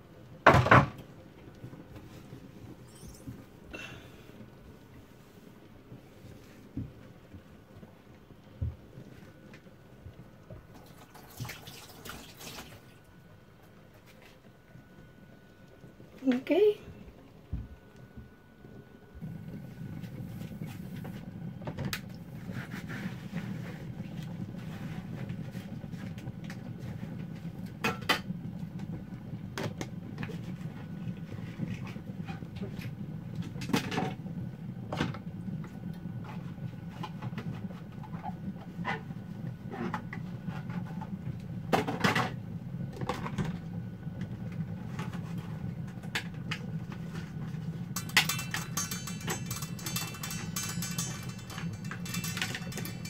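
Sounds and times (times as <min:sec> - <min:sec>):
steady low hum: 0:00.0 - 0:11.0, 0:12.9 - 0:53.0
dishes knocking and clinking: 0:00.5 - 0:01.0, 0:48.0 - 0:53.0.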